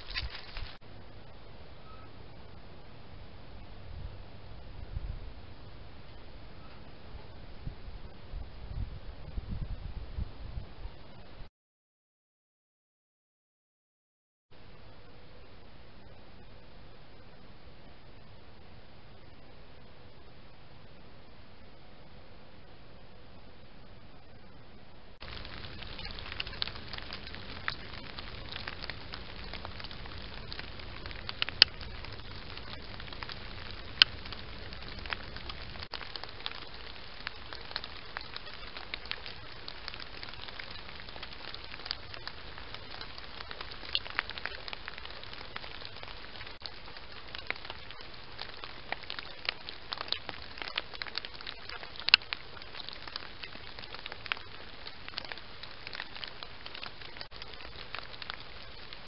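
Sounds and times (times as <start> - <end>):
crackling clicks: 0.0 - 0.8, 25.2 - 59.0
microphone hiss: 0.0 - 11.5, 14.6 - 59.0.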